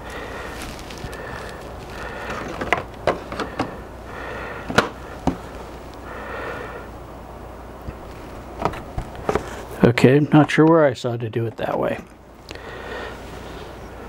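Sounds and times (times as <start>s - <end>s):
soft breaths: 0.0s - 7.1s, 12.4s - 14.0s.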